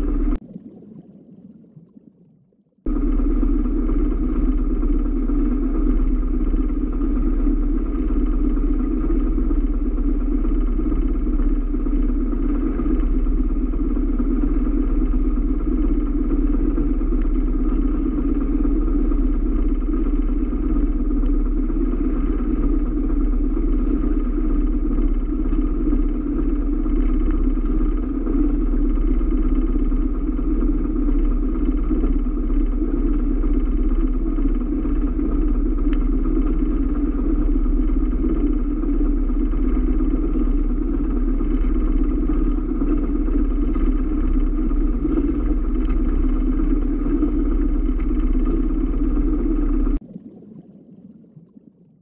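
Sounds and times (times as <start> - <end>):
boat engine drone: 0.0 - 0.4, 2.9 - 50.0.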